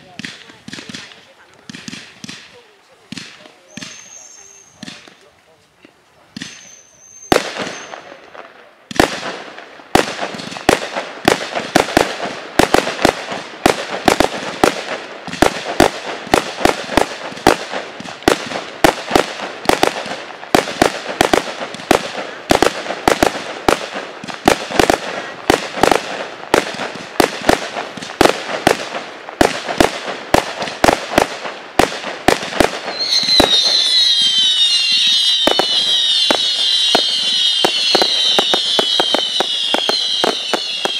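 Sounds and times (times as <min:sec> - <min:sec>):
firework cake firing sharp shots: 0:00.0 - 0:05.3, 0:06.3 - 0:40.9
firework whistling hiss: 0:03.6 - 0:05.2, 0:06.3 - 0:08.1, 0:32.6 - 0:40.9.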